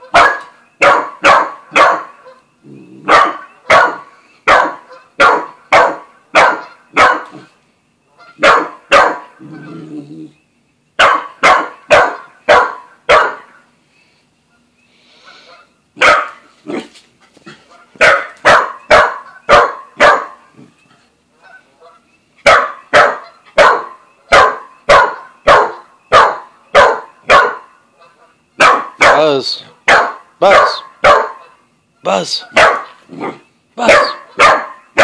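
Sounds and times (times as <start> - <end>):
dog barking: 0.1 - 2.4, 3.0 - 7.5, 8.4 - 9.7, 11.0 - 13.6, 16.0 - 16.9, 18.0 - 20.5, 22.4 - 27.7, 28.6 - 31.6, 32.5 - 35.0.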